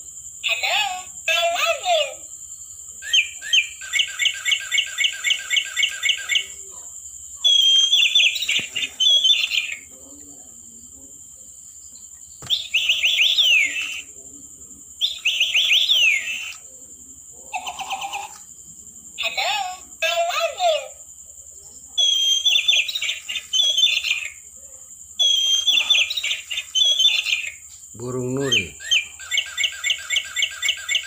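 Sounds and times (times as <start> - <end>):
toy parrot chirping: 3.0 - 6.6, 7.4 - 9.9, 12.4 - 14.1, 15.0 - 16.6, 17.5 - 18.4, 22.0 - 24.4, 25.2 - 31.0.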